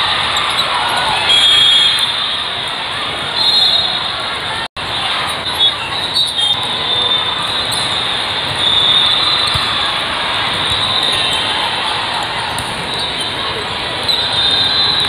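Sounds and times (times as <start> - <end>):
many voices in a hall: 0.0 - 15.0
shoe squeaks: 5.4 - 9.7.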